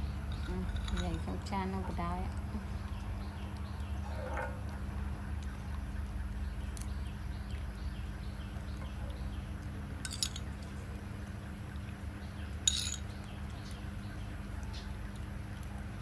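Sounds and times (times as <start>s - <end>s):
steady low hum: 0.0s - 16.0s
metal spoon clinking on ceramic bowl: 12.7s - 13.0s.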